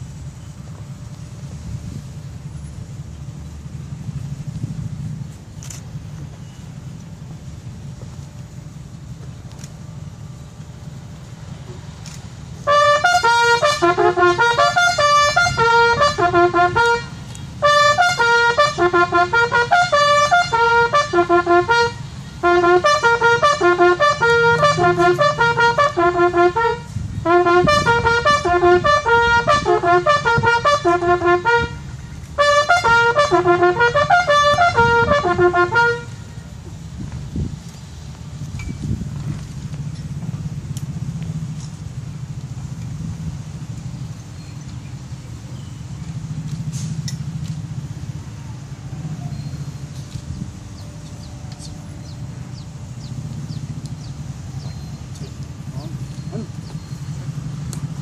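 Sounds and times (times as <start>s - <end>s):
bugle call: 12.6s - 36.4s.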